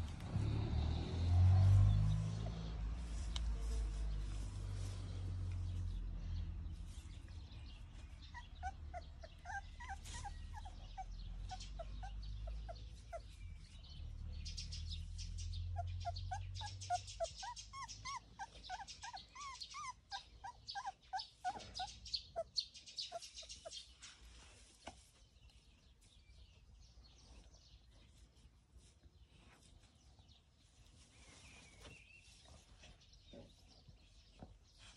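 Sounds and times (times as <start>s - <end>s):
dog whining: 8.3s - 13.2s, 15.8s - 23.2s.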